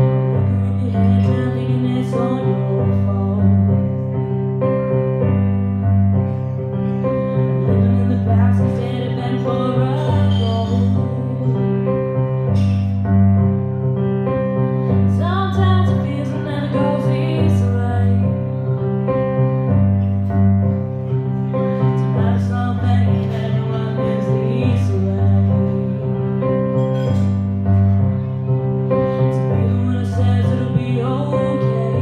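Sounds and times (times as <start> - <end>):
woman singing a slow ballad: 0.0 - 4.4, 7.3 - 12.9, 15.0 - 18.8, 21.7 - 27.4, 29.0 - 32.0
piano chords: 0.0 - 32.0.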